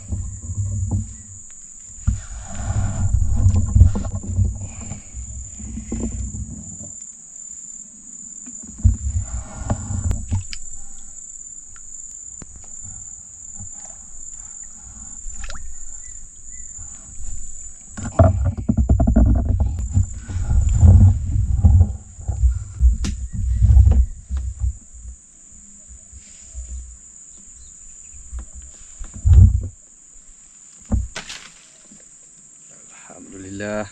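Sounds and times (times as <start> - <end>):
insects droning: 0.0 - 33.9
low rumble bursts: 19.1 - 23.9.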